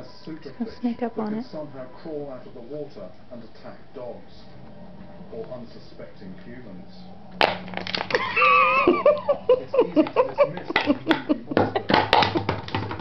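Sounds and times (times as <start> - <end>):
plastic bottle crackling and clicking: 7.4 - 8.2.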